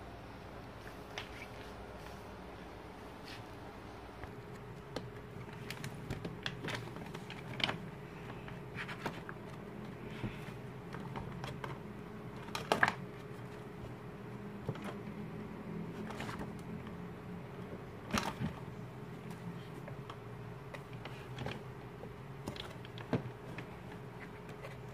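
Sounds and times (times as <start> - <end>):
stiff pages turning: 5.0 - 13.7, 15.9 - 16.9.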